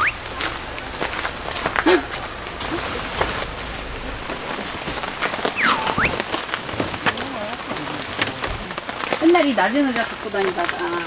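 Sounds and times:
whistle-like note: 0:00.0 - 0:00.2, 0:05.6 - 0:06.2
light rain pattering on tent: 0:00.0 - 0:11.0.

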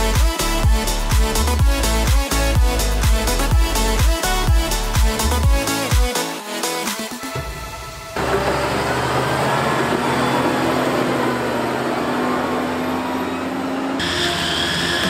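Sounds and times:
background music: 0:00.0 - 0:15.0
tractor engine rumbling: 0:08.2 - 0:15.0.

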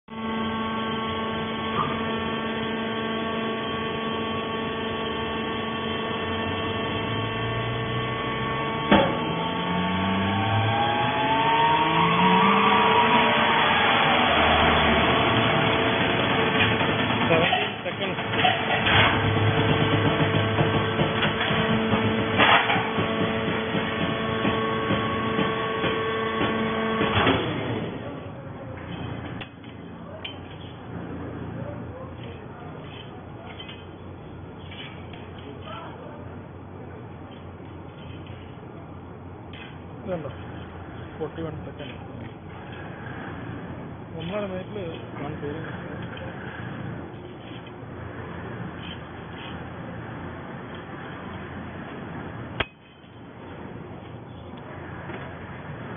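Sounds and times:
hydraulic power unit humming: 0:00.0 - 0:55.9
rising whine: 0:00.1 - 0:29.9
loud rushes of noise: 0:06.0 - 0:28.2.

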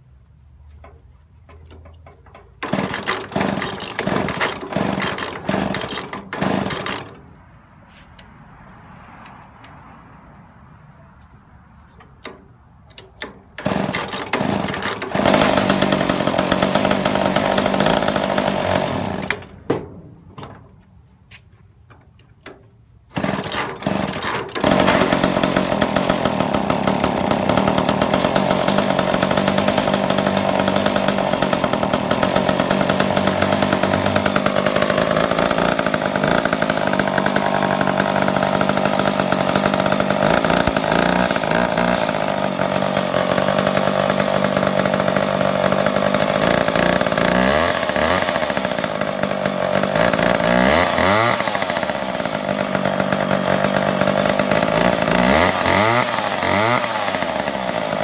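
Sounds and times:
chainsaw starter cord pulls: 0:00.8 - 0:07.4, 0:12.0 - 0:19.8, 0:21.9 - 0:58.0
chainsaw engine running: 0:01.8 - 0:07.3, 0:13.2 - 0:19.7, 0:23.1 - 0:58.0.

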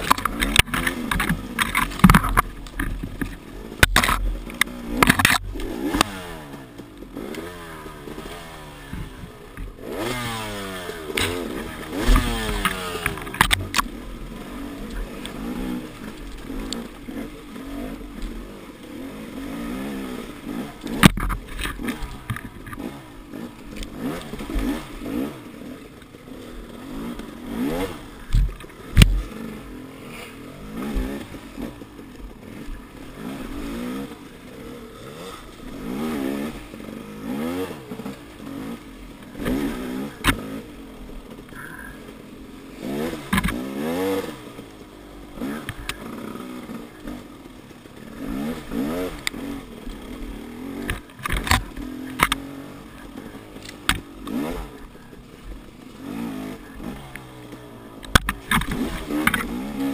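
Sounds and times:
sharp knocks and clatters: 0:00.0 - 0:06.1, 0:20.9 - 0:22.9
dirt bike engine revving: 0:00.0 - 0:59.9.

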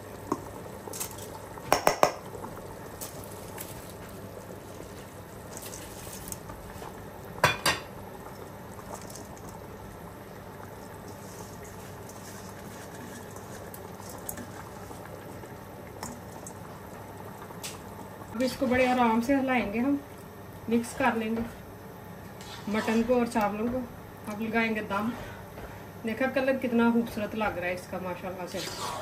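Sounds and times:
water bubbling in a pot: 0:00.0 - 0:22.4.

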